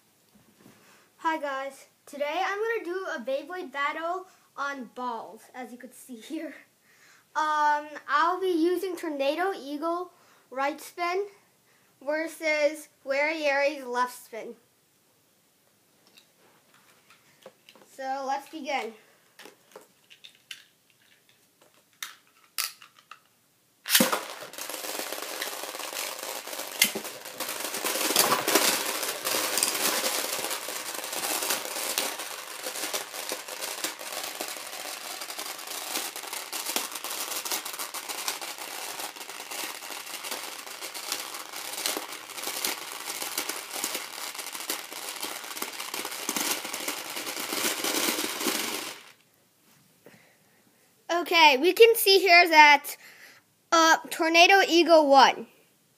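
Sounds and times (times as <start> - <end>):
sharp launch snap: 23.9 - 24.4
spinning tops rattling through balls: 23.9 - 49.2.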